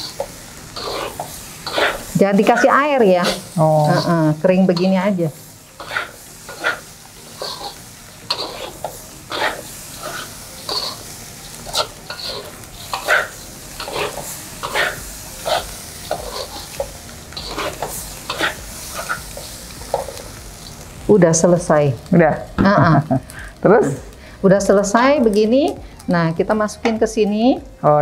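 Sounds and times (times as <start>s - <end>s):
spatula scraping rice in pan: 0.8s - 2.1s, 3.2s - 4.1s, 5.8s - 11.0s, 11.7s - 16.8s, 17.4s - 19.4s.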